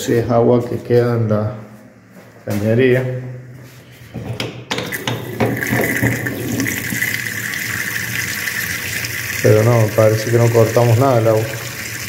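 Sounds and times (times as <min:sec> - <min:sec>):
kitchen faucet opening: 0:04.7 - 0:07.2
water running into steel sink: 0:04.8 - 0:12.0.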